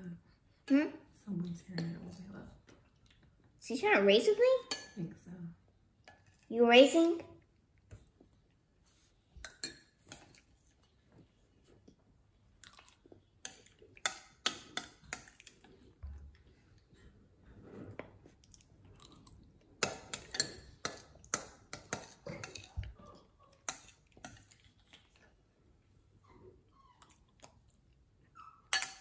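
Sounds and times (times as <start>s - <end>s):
spoons clinking on ceramic bowls: 9.4s - 10.4s, 19.8s - 22.9s, 28.7s - 29.0s
chewing: 9.5s - 17.2s, 18.1s - 25.6s, 26.3s - 28.6s.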